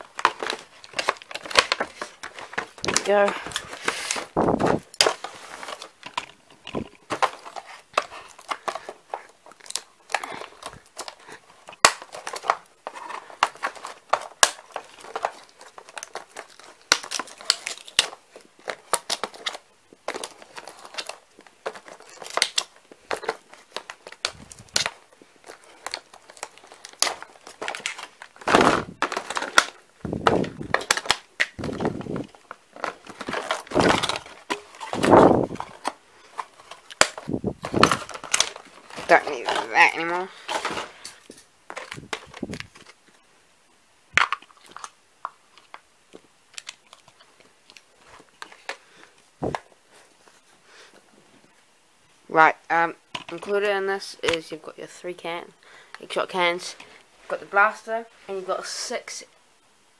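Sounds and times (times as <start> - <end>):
cardboard crinkling and tearing: 0.0 - 43.0.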